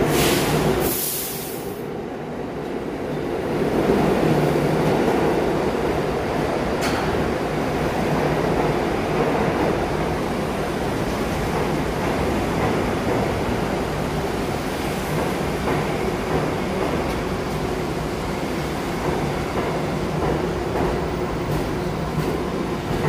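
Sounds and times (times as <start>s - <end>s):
subway train rumbling past: 0.0s - 23.0s
short hiss: 0.1s - 1.8s.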